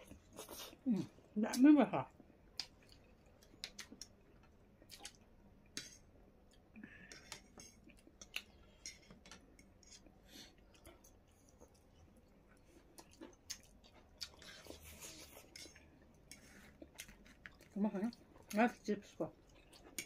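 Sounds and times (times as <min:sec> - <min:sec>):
soft chewing: 0:00.0 - 0:20.0.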